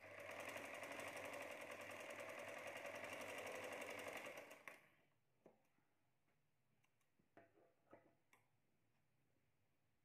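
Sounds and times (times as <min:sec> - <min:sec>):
sewing machine running: 0:00.0 - 0:04.8.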